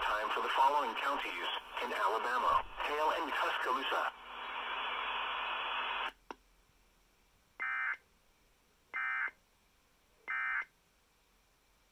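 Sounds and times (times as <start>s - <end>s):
radio hiss: 0.0s - 6.2s.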